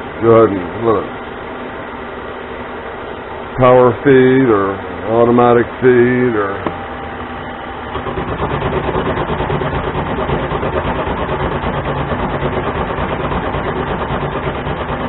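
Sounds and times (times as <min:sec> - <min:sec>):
fast pulsing rattle: 0:07.8 - 0:15.0
lathe cutting steel: 0:07.9 - 0:15.0.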